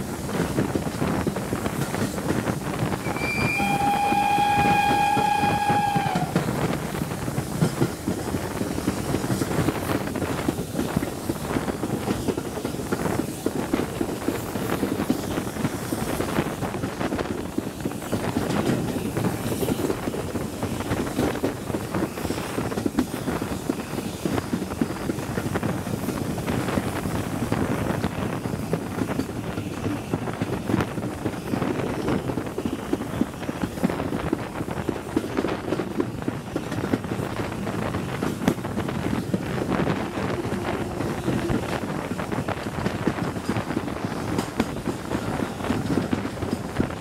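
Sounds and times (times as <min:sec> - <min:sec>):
train rumble: 0:00.0 - 0:47.0
train wheels clicking on rails: 0:00.0 - 0:47.0
wind rushing over microphone: 0:00.0 - 0:47.0.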